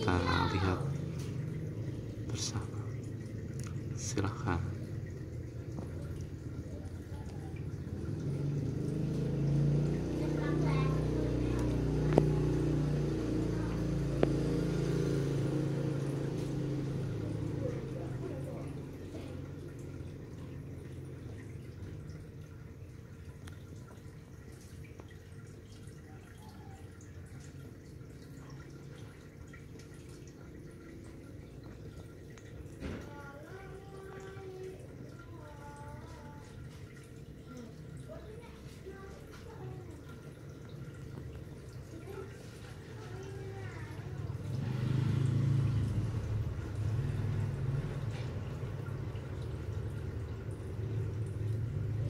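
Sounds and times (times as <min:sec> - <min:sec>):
air bubbles in water: 0:00.0 - 0:52.0.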